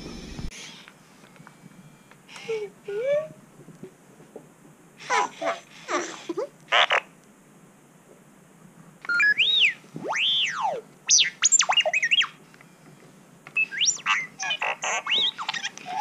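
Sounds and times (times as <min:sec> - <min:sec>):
toy robot beeping and whistling: 0:09.1 - 0:12.4, 0:13.6 - 0:16.0.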